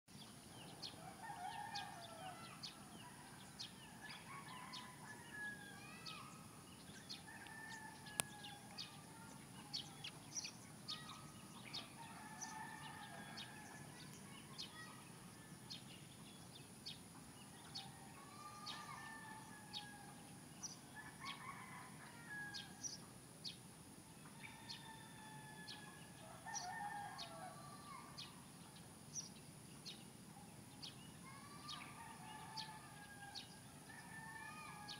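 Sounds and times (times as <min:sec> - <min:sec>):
small birds chirping: 0:00.1 - 0:24.9, 0:25.7 - 0:34.9
roosters crowing: 0:00.9 - 0:06.2, 0:07.1 - 0:09.1, 0:11.8 - 0:13.8, 0:17.6 - 0:22.9, 0:24.2 - 0:28.3, 0:31.3 - 0:34.9.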